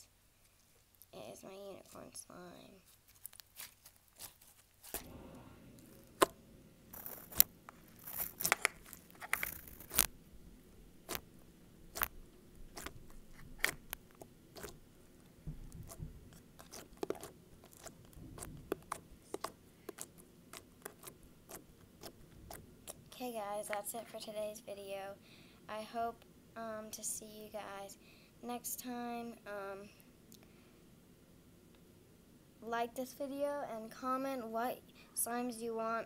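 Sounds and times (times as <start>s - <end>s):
slime clicking and popping: 13.6s - 14.8s, 16.6s - 18.0s, 18.6s - 22.2s.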